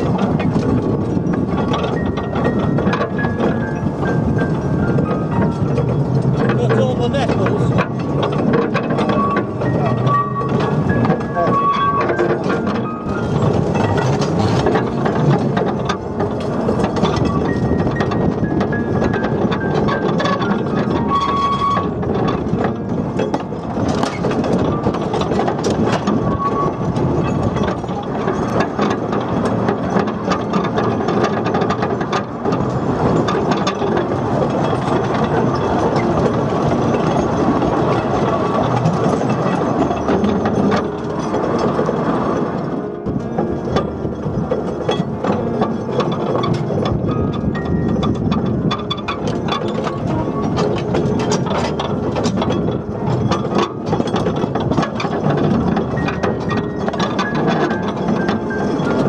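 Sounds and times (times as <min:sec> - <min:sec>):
clicks over rail joints: 0:00.0 - 0:59.0
train wheels rattling on rails: 0:00.0 - 0:59.0
high wheel squeals: 0:08.9 - 0:14.5, 0:17.2 - 0:22.1.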